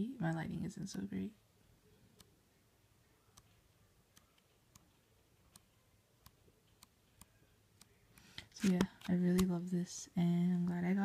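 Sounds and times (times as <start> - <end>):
pages flipping with faint ticks: 3.3 - 9.6.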